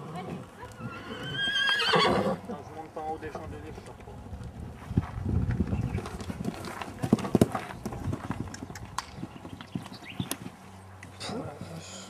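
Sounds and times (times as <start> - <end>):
horse hoofbeats: 3.9 - 11.8.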